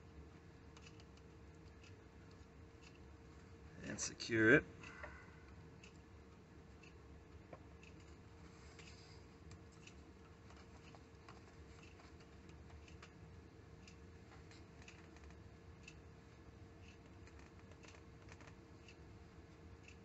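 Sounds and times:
faint steady hum: 0:00.0 - 0:20.0
faint ticks: 0:13.8 - 0:16.0.

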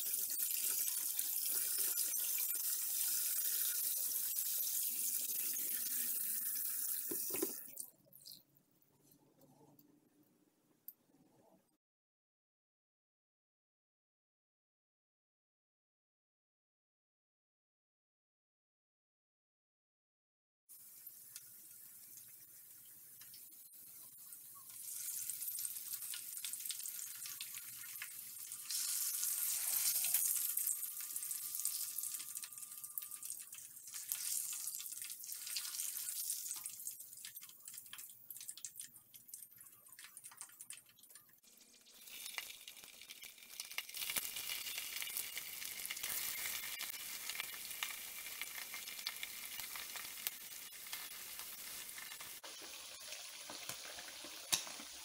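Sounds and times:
hot oil sizzling in a wok: 0:00.0 - 0:07.6, 0:20.7 - 0:55.0.

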